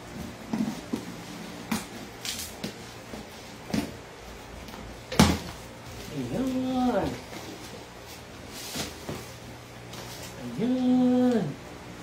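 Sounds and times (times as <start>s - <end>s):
packing tape tearing off cardboard: 1.7s - 2.9s.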